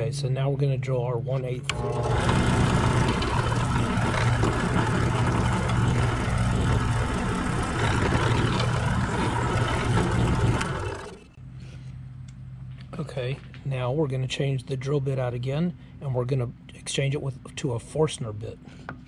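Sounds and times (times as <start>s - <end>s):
drill bit cutting into wood: 1.7s - 11.3s
drill press motor humming: 1.7s - 11.4s.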